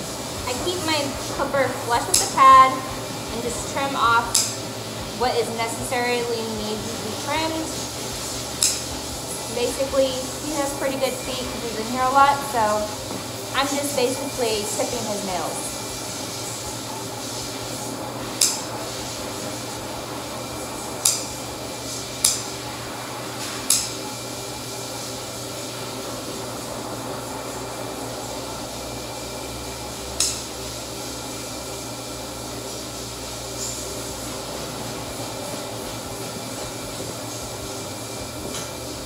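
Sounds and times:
steady background hum: 0:00.0 - 0:39.0
nail clippers clicking: 0:04.3 - 0:04.6, 0:08.6 - 0:08.8, 0:21.0 - 0:21.3, 0:23.7 - 0:23.9, 0:30.2 - 0:30.4.

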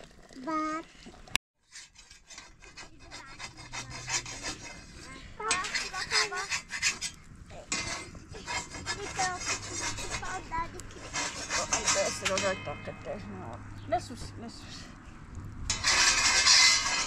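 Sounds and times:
rapid scraping strokes: 0:01.6 - 0:13.4, 0:15.6 - 0:17.0.

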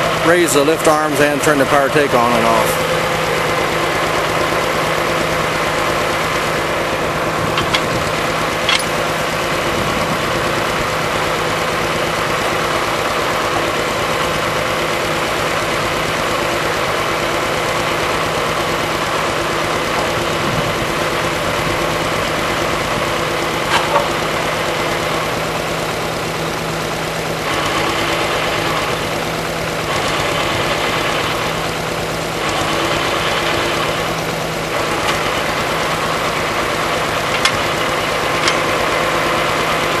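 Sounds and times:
diesel tractor engine idling: 0:00.0 - 0:40.0
hydraulic lift noise: 0:02.6 - 0:11.6, 0:34.7 - 0:40.0.

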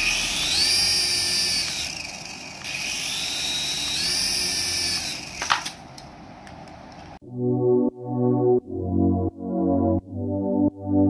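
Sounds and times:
toy helicopter motors whining: 0:00.0 - 0:05.7.

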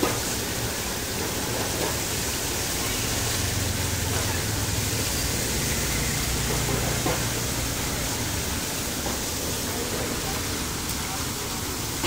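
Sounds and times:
floodwater rushing through drain grate: 0:00.0 - 0:12.0.

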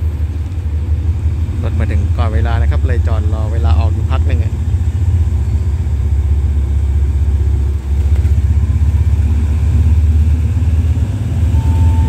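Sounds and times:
diesel locomotive engine drone: 0:00.0 - 0:12.0.

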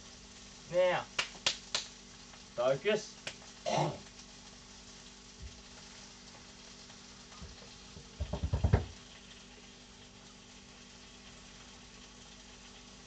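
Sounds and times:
steak sizzling in a frying pan: 0:00.0 - 0:13.0
rapid rattle of knocks: 0:08.0 - 0:09.0.

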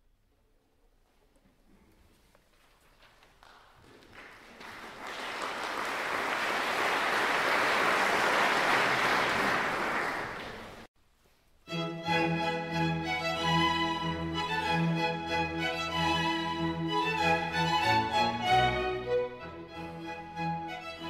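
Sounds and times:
applause: 0:03.2 - 0:10.9
string music led by violin: 0:11.7 - 0:21.0.

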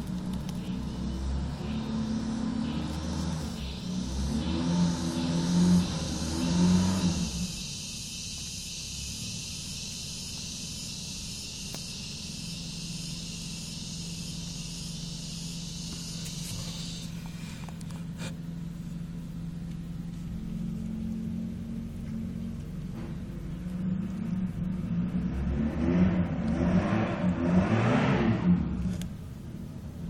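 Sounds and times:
faint clicks: 0:00.0 - 0:00.8
background hiss: 0:00.0 - 0:30.0
low hum: 0:00.0 - 0:30.0.

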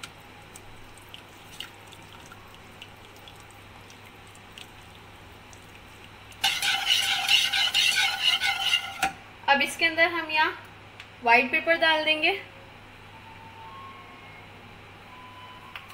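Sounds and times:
spatula stirring thick sauce: 0:00.5 - 0:09.1
wire whisk scraping a pan: 0:06.4 - 0:09.1.

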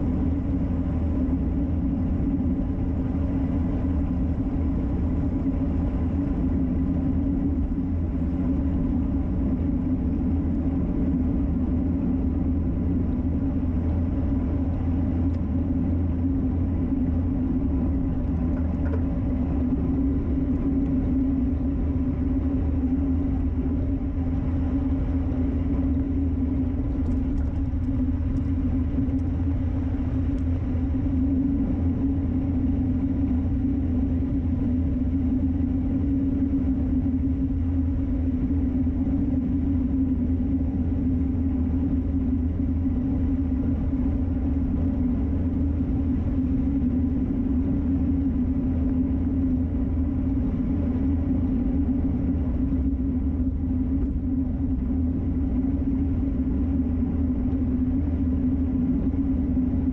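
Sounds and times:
low hum: 0:00.0 - 0:59.9
wind rush: 0:00.0 - 0:59.9.

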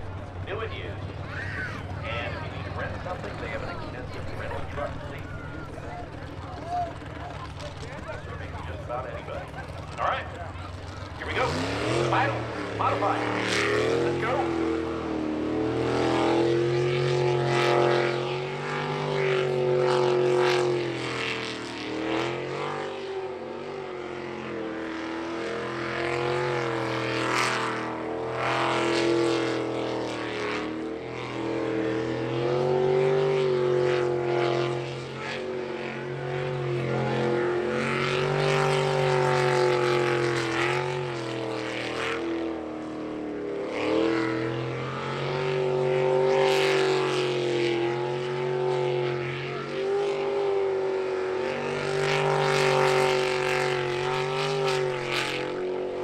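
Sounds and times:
boat engine running hard: 0:00.0 - 0:56.0.

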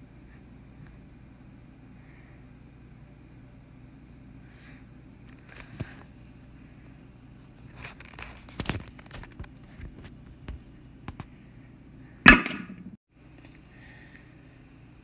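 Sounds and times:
small clicks and rubbing: 0:07.7 - 0:11.3
sharp loud pop: 0:12.2 - 0:12.8.

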